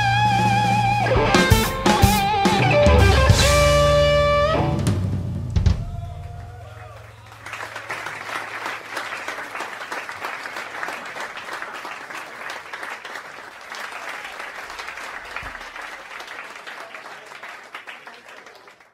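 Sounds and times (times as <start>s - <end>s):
audience applauding: 5.8s - 18.9s.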